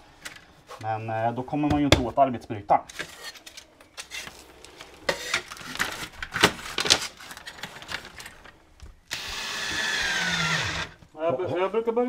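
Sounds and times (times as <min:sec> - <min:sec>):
cordless drill driving screw: 0:09.1 - 0:11.0.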